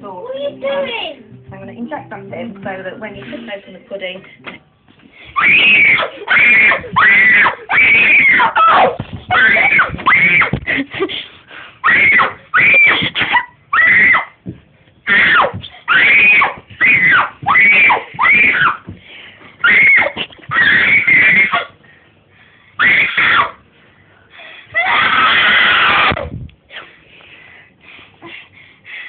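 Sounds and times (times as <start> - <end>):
child screaming: 5.4 - 10.5, 13.7 - 14.3, 15.1 - 18.8, 19.6 - 21.7, 24.8 - 26.2.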